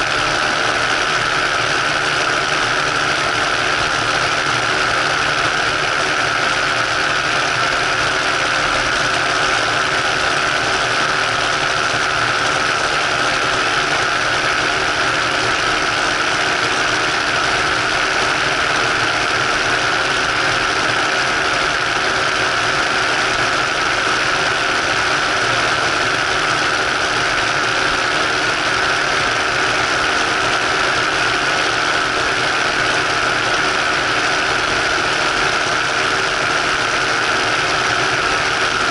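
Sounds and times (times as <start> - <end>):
engine and propeller running: 0.0 - 38.9.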